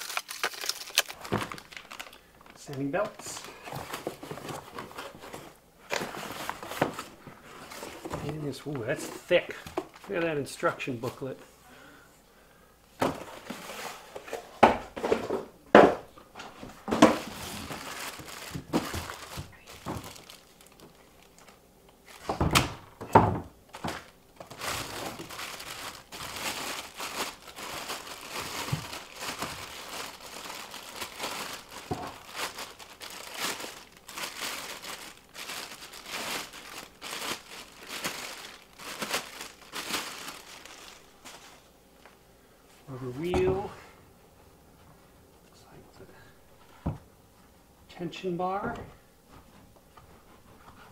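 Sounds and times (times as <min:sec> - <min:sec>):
plastic bag crinkling: 0:00.0 - 0:08.1, 0:16.9 - 0:22.4, 0:23.7 - 0:41.6
cardboard packaging thuds: 0:00.1 - 0:01.8, 0:16.8 - 0:20.9, 0:22.1 - 0:41.5.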